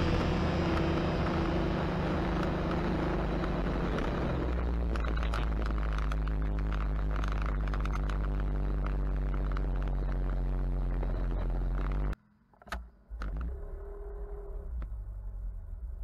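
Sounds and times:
motorcycle engine cruising: 0.0 - 12.2
quiet steady vehicle sound: 0.0 - 16.0.

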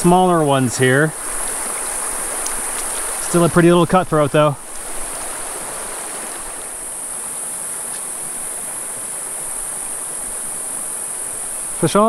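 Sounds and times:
creek babbling over rocks: 0.0 - 12.0
high-pitched insect buzz: 4.6 - 12.0.

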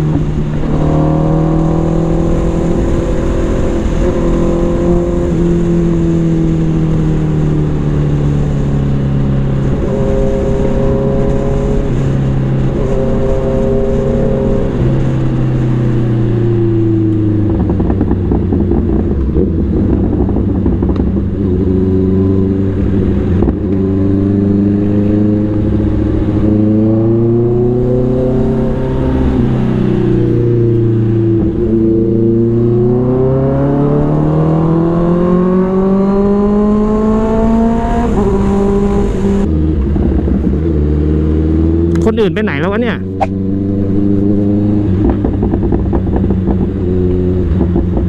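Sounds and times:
motorcycle engine running: 14.2 - 33.1, 36.4 - 48.0.

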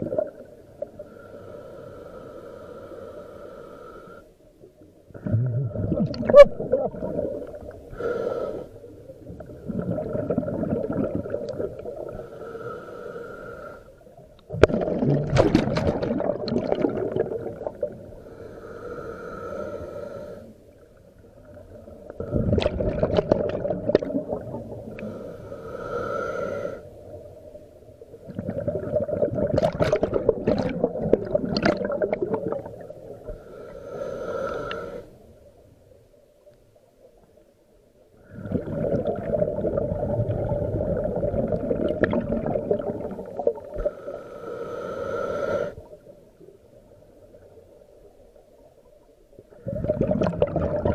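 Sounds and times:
regulator hissing inhale: 0.8 - 4.4, 7.8 - 9.0, 11.9 - 14.1, 18.1 - 20.8, 24.8 - 27.2, 33.2 - 35.4, 43.7 - 46.1
exhaled bubbles rushing: 5.2 - 7.8, 9.3 - 12.1, 14.5 - 18.1, 22.3 - 24.9, 28.3 - 33.0, 38.2 - 43.8, 49.5 - 50.9.

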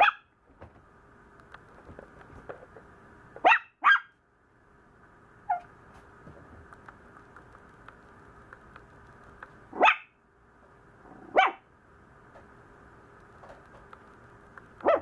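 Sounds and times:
puppy barking: 0.0 - 0.3, 3.4 - 4.2, 9.7 - 10.2, 11.2 - 11.7, 14.8 - 15.0.

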